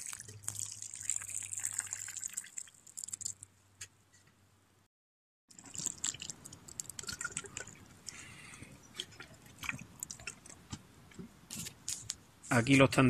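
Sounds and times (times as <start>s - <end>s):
straw and leaves crackling: 5.6s - 7.0s.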